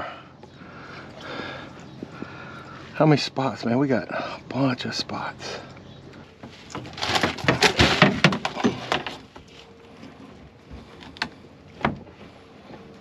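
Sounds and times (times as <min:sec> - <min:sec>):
hard knocks and clatters: 0:06.8 - 0:09.2.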